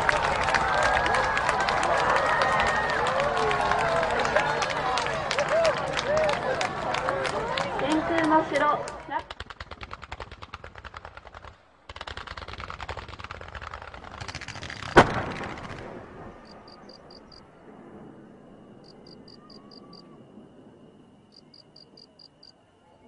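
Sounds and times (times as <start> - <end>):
fireworks crackling: 0.0 - 20.7
loud firework bang: 14.2 - 16.6
faint high whine: 16.0 - 23.0.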